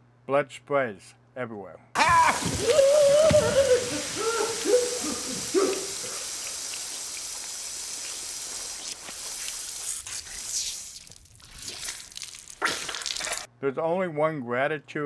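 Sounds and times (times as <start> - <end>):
person shouting: 2.0 - 6.3
hissing gush of spraying liquid: 2.0 - 13.5.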